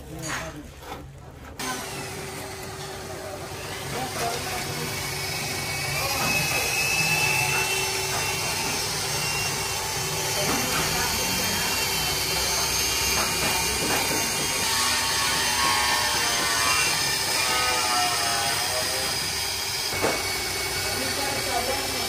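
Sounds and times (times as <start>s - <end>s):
power tool whirring: 1.6s - 22.0s.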